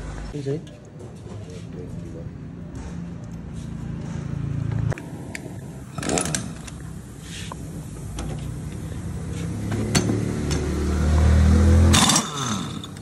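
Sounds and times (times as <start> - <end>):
pneumatic impact wrench buzzing: 11.8 - 13.0.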